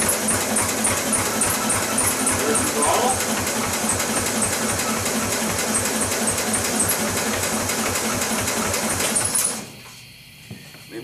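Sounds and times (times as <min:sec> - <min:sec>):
garden tractor engine running: 0:00.0 - 0:09.7.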